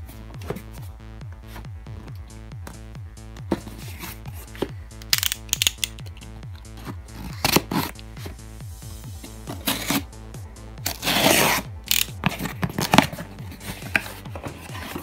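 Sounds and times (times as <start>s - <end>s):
background music with bass beat: 0.0s - 15.0s
knife slicing tape and cardboard: 7.1s - 8.0s, 9.5s - 10.1s, 10.9s - 15.0s.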